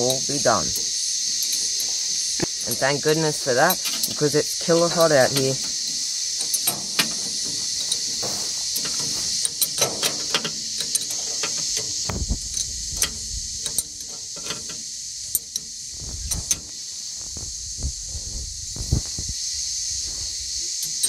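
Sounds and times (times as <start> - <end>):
metallic clicks of a spanner: 0.0 - 16.8, 20.7 - 21.0
high-pitched insect chorus: 0.0 - 21.0.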